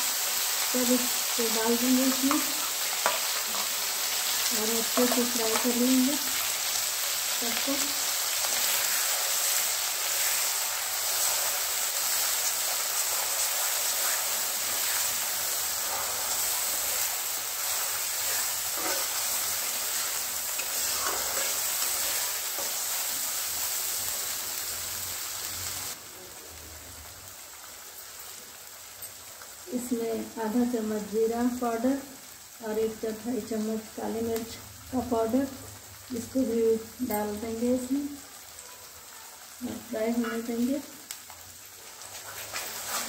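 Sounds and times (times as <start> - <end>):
paste sizzling in hot oil: 0.0 - 43.0
steel spatula scraping: 8.4 - 23.2, 42.0 - 43.0.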